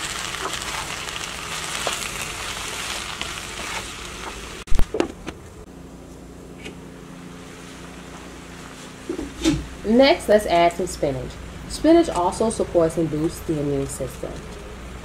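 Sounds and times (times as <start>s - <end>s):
vegetables sizzling in skillet: 0.0s - 4.7s
wooden spoon stirring: 0.3s - 4.4s.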